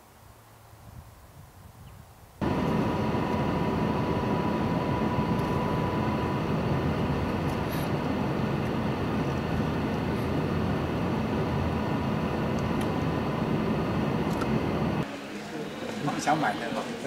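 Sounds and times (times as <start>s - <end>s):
thin steady whine: 2.4s - 17.0s
car engine and tyre noise: 7.0s - 15.0s.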